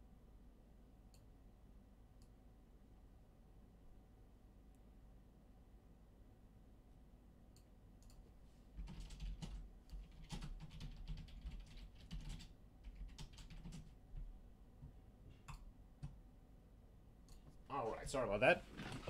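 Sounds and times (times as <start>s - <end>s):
faint keyboard typing: 7.6s - 16.2s.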